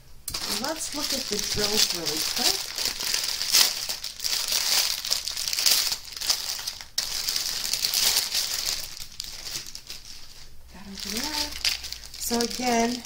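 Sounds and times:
plastic bag crinkling: 0:00.3 - 0:13.0.

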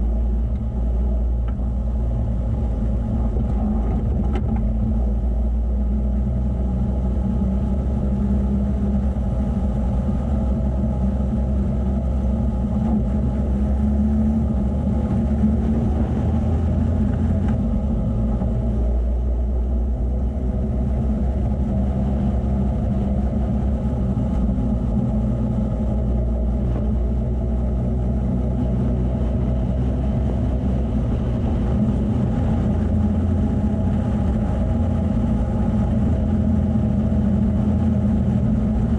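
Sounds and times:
vehicle engine droning: 0:00.0 - 0:38.9.

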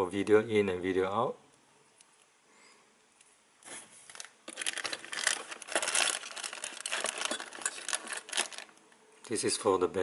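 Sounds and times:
plastic bag crinkling: 0:03.7 - 0:08.8.

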